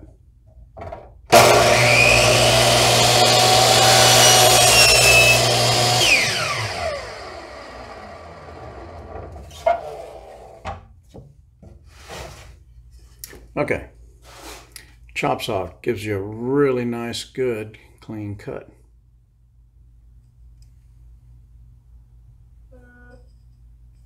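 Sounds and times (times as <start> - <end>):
miter saw cutting wood: 1.3 - 10.5.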